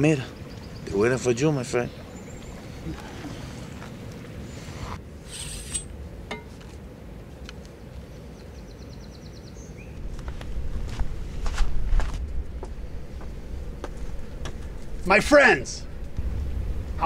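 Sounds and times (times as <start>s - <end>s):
low rumble: 10.0s - 17.0s.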